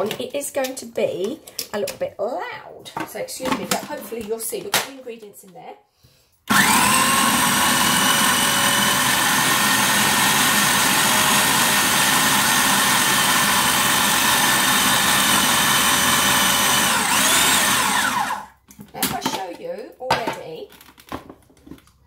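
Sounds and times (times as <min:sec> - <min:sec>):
food processor motor whine: 0:06.5 - 0:18.6.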